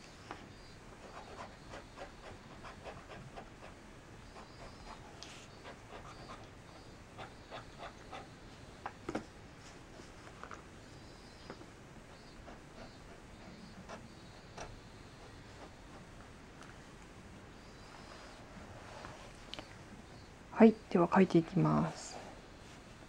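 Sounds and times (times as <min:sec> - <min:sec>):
fountain pen scratching on paper: 0:01.0 - 0:06.5.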